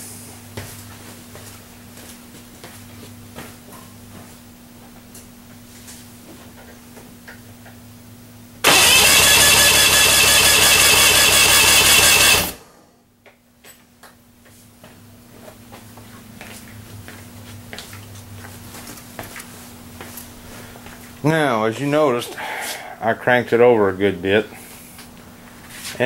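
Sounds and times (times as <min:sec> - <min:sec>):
outboard motor cranking on starter: 0:08.6 - 0:12.6.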